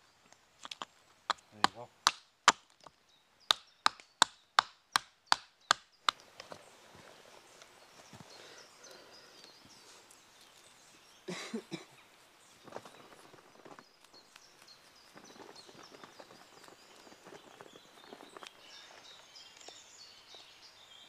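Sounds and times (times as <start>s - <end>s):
axe chopping wood: 1.3s - 2.8s, 3.5s - 6.2s.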